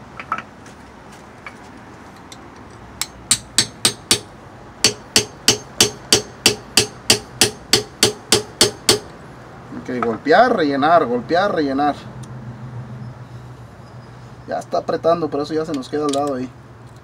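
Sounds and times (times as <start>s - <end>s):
hammer striking steel rod: 3.0s - 9.1s.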